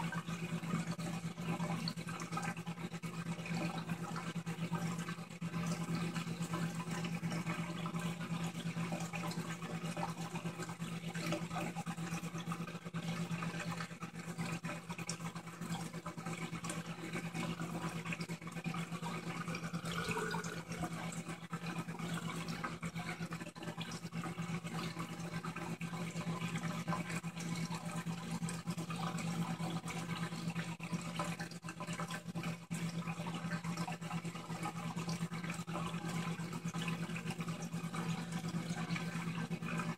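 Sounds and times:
aquarium equipment hum: 0.0 - 39.9
water trickling and churning: 0.0 - 39.9.

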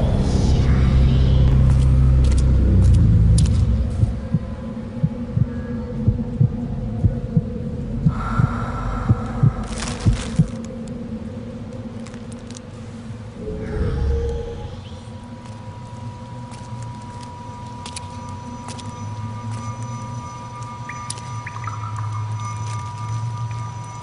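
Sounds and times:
dull low thumps: 0.0 - 10.6
deep rumble: 0.0 - 24.0.

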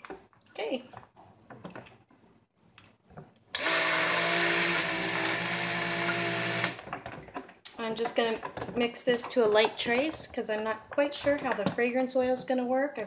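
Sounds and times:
stick blender motor hum: 3.6 - 6.8.

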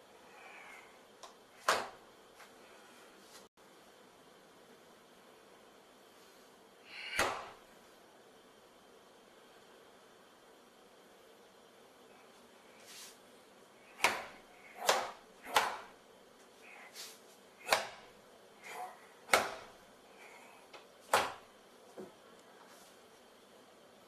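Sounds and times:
sharp strike snaps: 7.0 - 7.6, 14.0 - 16.0, 17.6 - 18.1.

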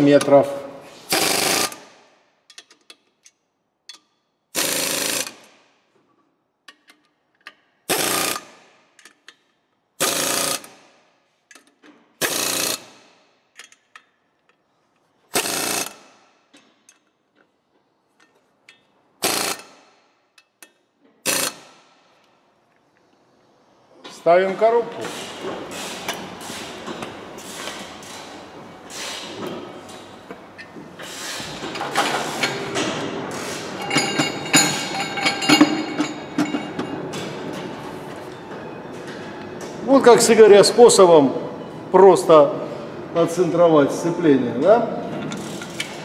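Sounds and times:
power wrench bursts: 1.1 - 1.9, 4.6 - 5.4, 7.9 - 8.6, 10.0 - 10.8, 12.2 - 13.0, 15.3 - 16.1, 19.2 - 19.9, 21.2 - 21.8
clicks of socket and tools: 2.5 - 4.1, 6.6 - 7.6, 9.0 - 9.5, 13.6 - 14.6.

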